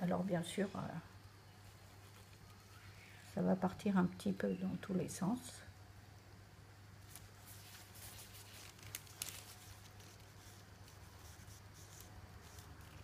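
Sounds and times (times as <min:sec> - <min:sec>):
low steady hum: 0:00.0 - 0:13.0
gloved hands rustling: 0:07.0 - 0:13.0.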